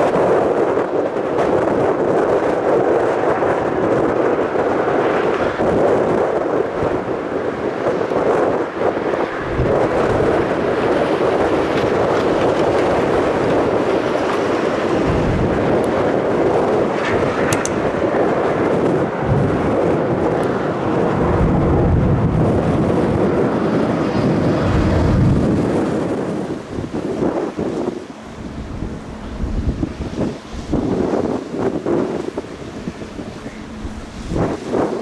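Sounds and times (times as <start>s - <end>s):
jet engines roaring: 0.0s - 35.0s
wind buffeting microphone: 0.0s - 35.0s.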